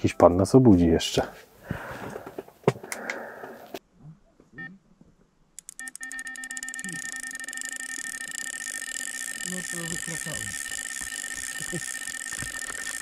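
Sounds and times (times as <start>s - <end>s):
electronic bite alarm beeps: 5.7s - 13.0s.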